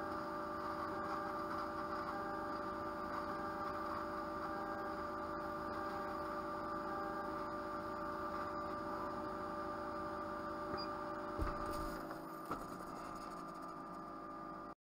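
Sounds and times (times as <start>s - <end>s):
laser cutter electrical hum: 0.0s - 14.8s.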